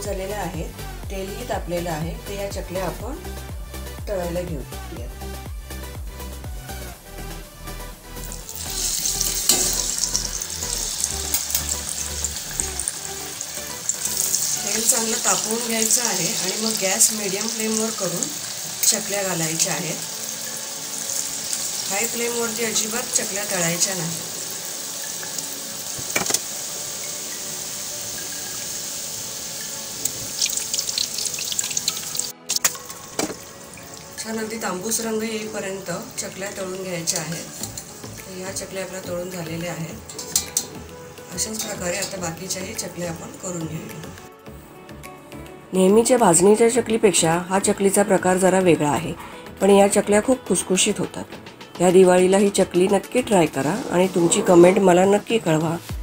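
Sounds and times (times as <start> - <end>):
hot oil sizzling and bubbling: 8.0 - 44.2
sharp crackles of frying: 8.2 - 44.3.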